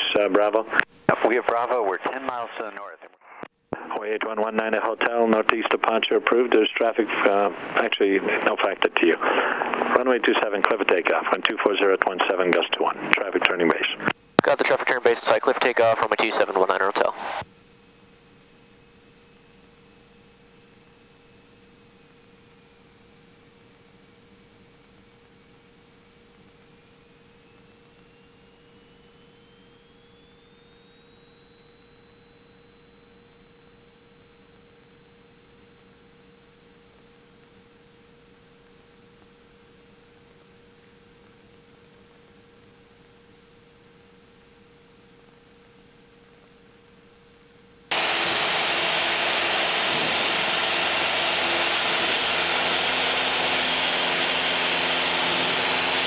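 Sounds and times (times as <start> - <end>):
thin electrical whine: 0.0 - 56.0
aircraft engine and propeller noise: 9.2 - 10.8, 47.9 - 56.0.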